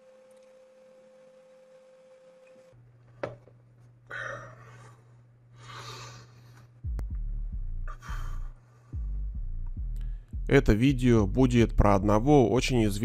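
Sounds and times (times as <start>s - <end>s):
faint steady tone: 0.0s - 2.8s.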